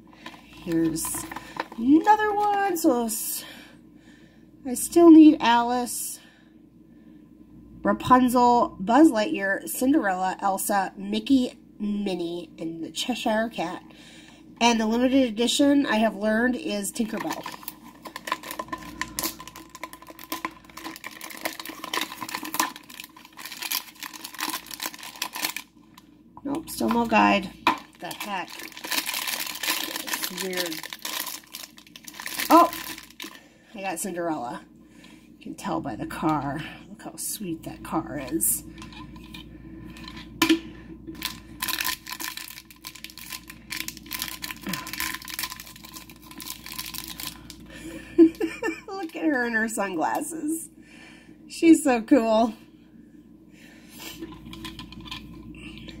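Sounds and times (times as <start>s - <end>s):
foil pouch crinkling: 17.0s - 25.7s, 26.6s - 33.4s, 41.1s - 47.6s.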